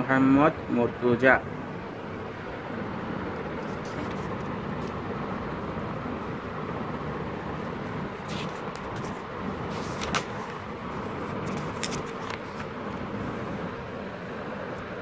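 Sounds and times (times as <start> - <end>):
magazine pages turning: 3.6 - 5.0, 8.1 - 12.8.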